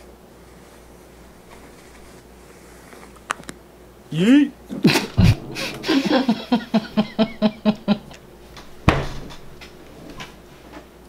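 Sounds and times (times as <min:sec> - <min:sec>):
man's stifled giggles: 0:04.7 - 0:08.2.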